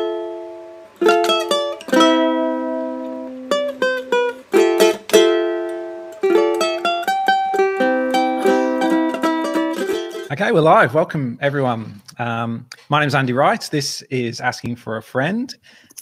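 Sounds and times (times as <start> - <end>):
plucked string music: 0.0 - 10.8.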